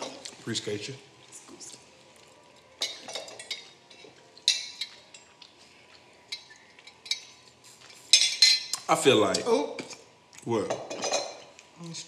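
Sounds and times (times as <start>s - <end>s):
dishes and cutlery clinking: 0.0s - 0.4s, 2.5s - 10.0s, 10.6s - 11.6s.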